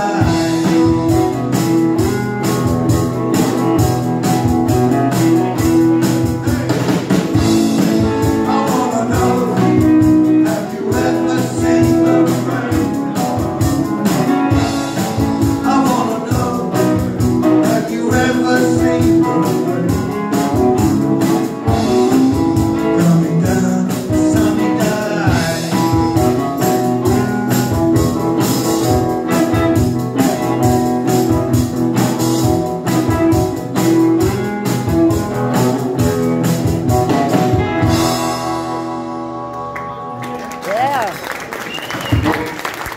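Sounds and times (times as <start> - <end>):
person singing: 0.0 - 1.4, 7.4 - 27.4
acoustic rock band playing: 0.0 - 42.9.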